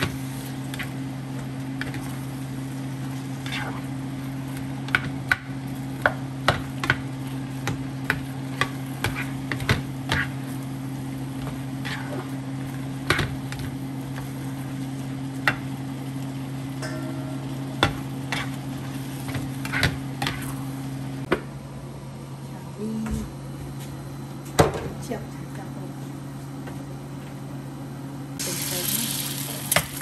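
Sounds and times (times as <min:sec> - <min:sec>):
food sizzling in frying pan: 0:00.0 - 0:21.3, 0:28.4 - 0:30.0
low electrical hum: 0:00.0 - 0:30.0.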